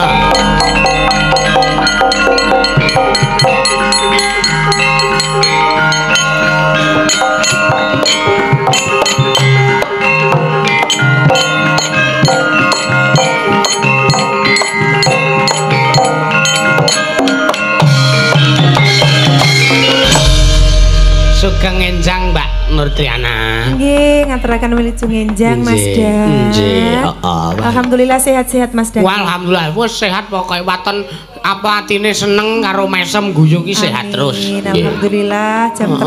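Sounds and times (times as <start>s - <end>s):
metallophones ringing: 0.0s - 27.2s
drumming: 0.0s - 30.6s.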